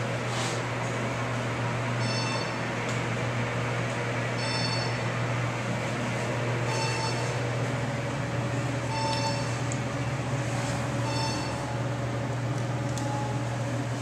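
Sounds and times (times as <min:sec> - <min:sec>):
elevator hum and ride noise: 0:00.0 - 0:14.0.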